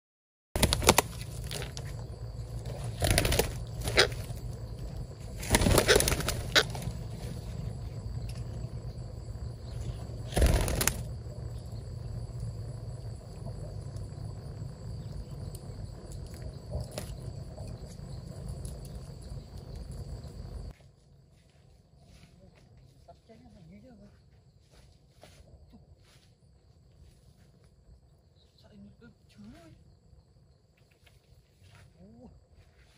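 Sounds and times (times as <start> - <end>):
parrot wings flapping: 0.6 - 8.7, 9.6 - 11.2
steady low rumble: 0.6 - 21.3.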